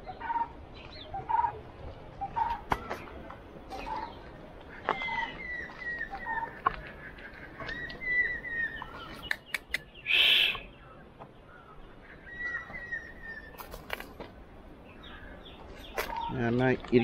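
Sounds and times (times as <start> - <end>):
birds calling: 0.0 - 17.0
sharp clicks: 9.2 - 9.9.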